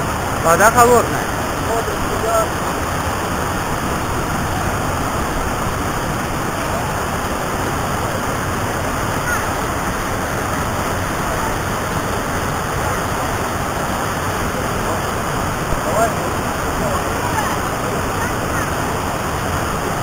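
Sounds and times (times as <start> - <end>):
waterfall rushing onto rocks: 0.0 - 20.0.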